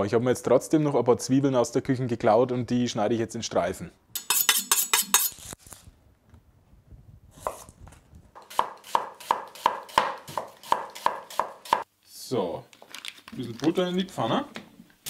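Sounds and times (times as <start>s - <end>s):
knife on sharpening steel: 4.2s - 5.6s.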